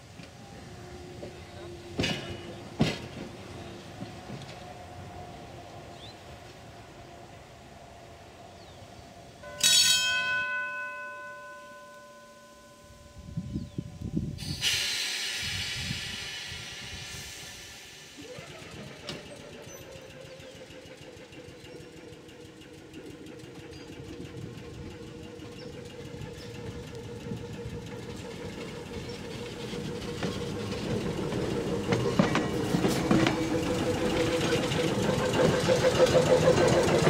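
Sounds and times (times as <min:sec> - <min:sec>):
train humming with held tone: 0:00.0 - 0:37.0
air hissing: 0:14.1 - 0:19.0.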